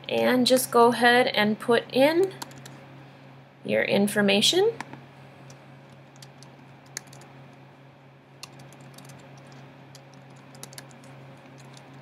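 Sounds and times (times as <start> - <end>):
faint low hum: 0.0 - 12.0
keyboard typing: 2.4 - 2.8, 6.0 - 7.3, 8.4 - 12.0.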